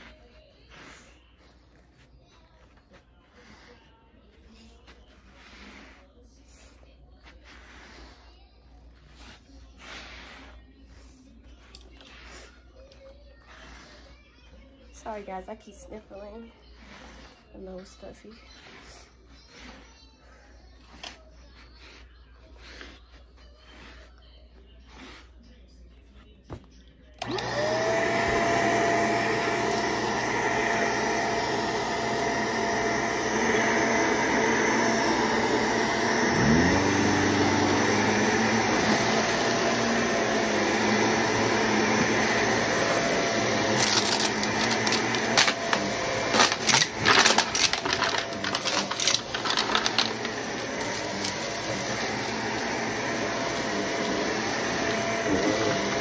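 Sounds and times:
vacuum cleaner motor whine: 27.2 - 56.0
debris clicking in vacuum: 43.8 - 51.5.

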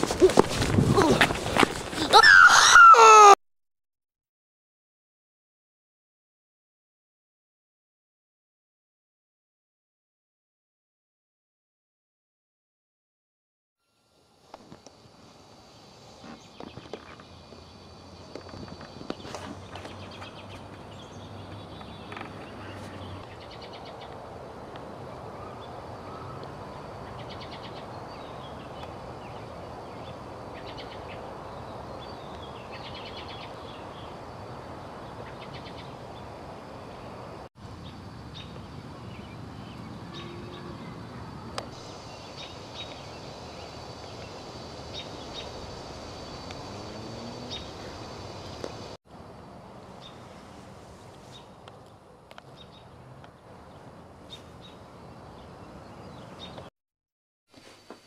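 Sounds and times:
steady background hiss: 13.8 - 21.9, 22.6 - 52.9
small birds chirping: 16.1 - 24.3, 25.0 - 36.3, 37.0 - 49.0, 49.9 - 56.7.

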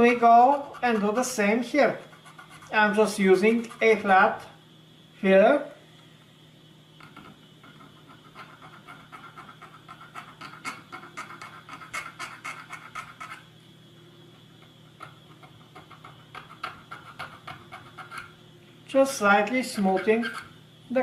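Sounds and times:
file rasping on metal: 0.2 - 1.2, 1.8 - 2.8, 7.6 - 13.5, 15.4 - 18.4, 19.8 - 20.5.

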